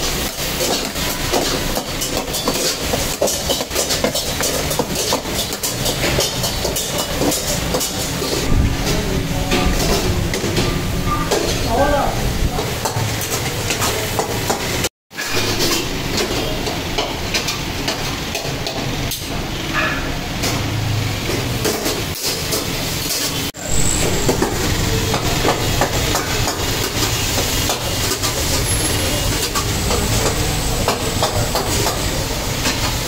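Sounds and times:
metal spatulas scraping woks: 0:00.0 - 0:11.9, 0:12.6 - 0:20.5
gas burners rumbling: 0:00.0 - 0:33.0
meat sizzling: 0:20.6 - 0:33.0.

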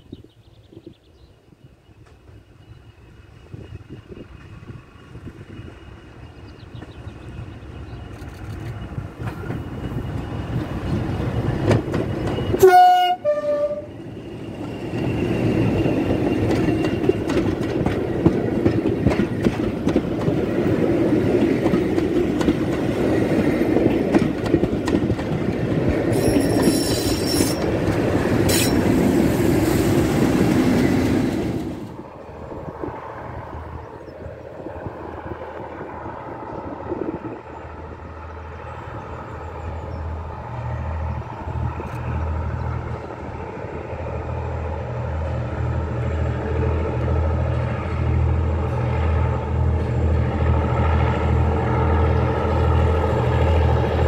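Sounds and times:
diesel locomotive approaching: 0:00.0 - 0:54.0
train wheels clickety-clack: 0:07.8 - 0:13.2, 0:14.4 - 0:31.8
two-note train horn: 0:12.6 - 0:14.0.

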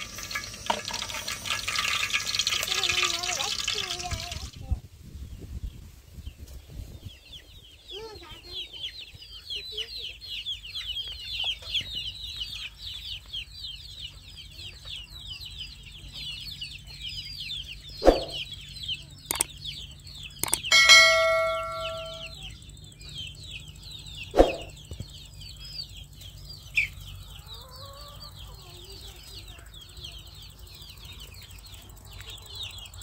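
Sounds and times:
birds chirping: 0:02.7 - 0:33.0
metal cookware clang: 0:20.5 - 0:22.4.

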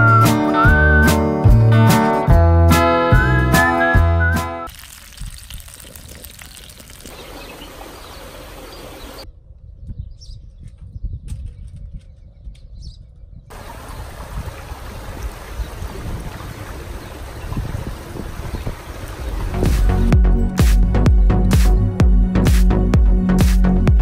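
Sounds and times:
steady wind hiss: 0:05.0 - 0:09.2, 0:13.5 - 0:20.2
wind rumble on microphone: 0:05.1 - 0:21.5.

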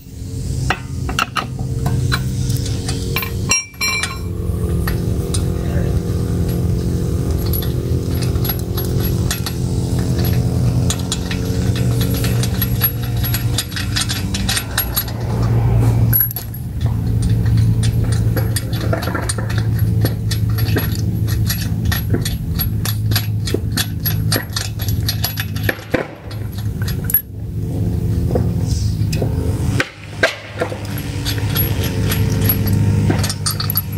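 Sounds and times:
low hum: 0:00.0 - 0:33.9
lug nuts clinking: 0:00.4 - 0:33.9.

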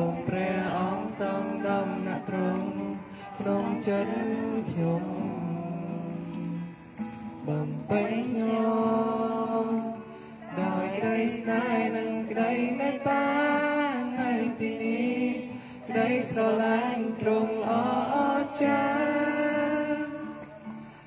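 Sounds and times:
man singing hymn through loudspeaker: 0:00.0 - 0:21.0.

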